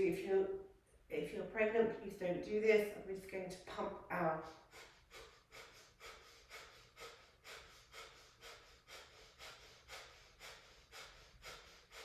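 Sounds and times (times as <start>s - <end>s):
short forceful breaths: 4.4s - 12.0s.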